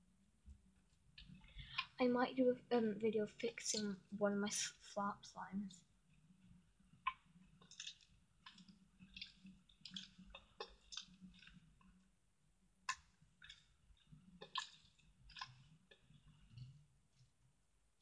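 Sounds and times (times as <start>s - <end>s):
putty squelching: 6.9s - 12.0s, 12.8s - 17.4s.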